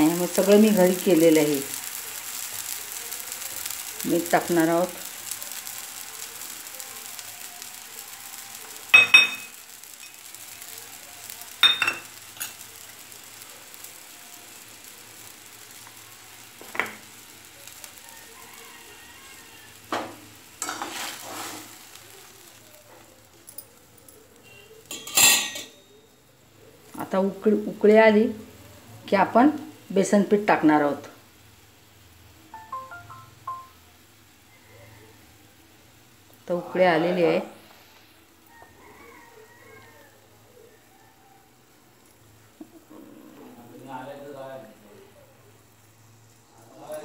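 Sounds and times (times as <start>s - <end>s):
faint sizzle in a pan: 0.0s - 47.0s
metallic clinks on a pan: 8.9s - 10.2s, 11.6s - 12.6s, 24.8s - 25.9s.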